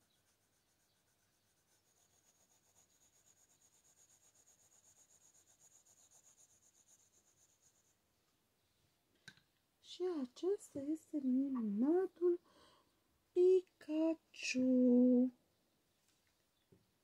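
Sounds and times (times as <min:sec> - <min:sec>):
pencil scratching on paper: 0:00.0 - 0:08.0.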